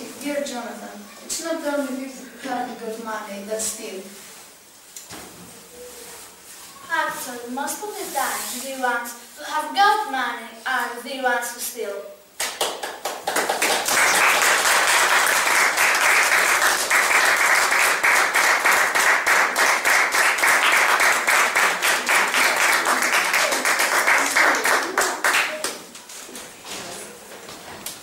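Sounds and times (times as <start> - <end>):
audience applauding: 12.4 - 26.0.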